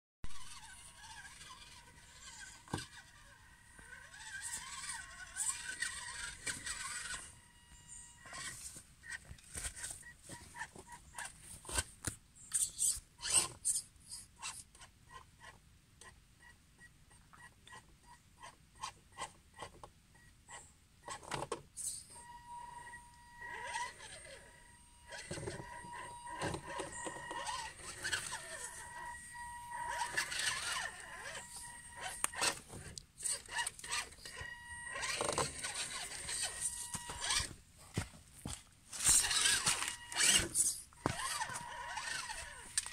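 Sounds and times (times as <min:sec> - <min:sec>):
small electric motor whining: 0:00.3 - 0:11.3, 0:12.5 - 0:15.5, 0:18.4 - 0:38.0, 0:38.9 - 0:42.9.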